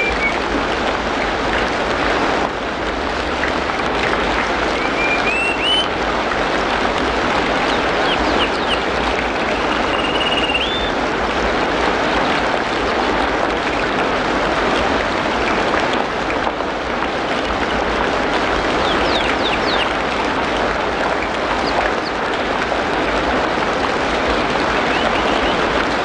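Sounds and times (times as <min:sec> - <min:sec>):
bird whistling calls: 0:00.0 - 0:00.4, 0:04.8 - 0:05.9, 0:08.0 - 0:08.8, 0:09.6 - 0:11.0, 0:18.8 - 0:19.9, 0:24.9 - 0:25.6
steady rain falling: 0:00.0 - 0:26.0.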